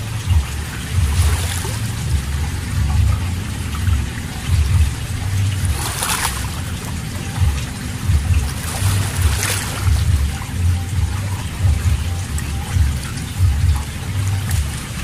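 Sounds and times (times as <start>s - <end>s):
low uneven rumble: 0.0s - 15.0s
water splashing around wading feet: 0.0s - 15.0s.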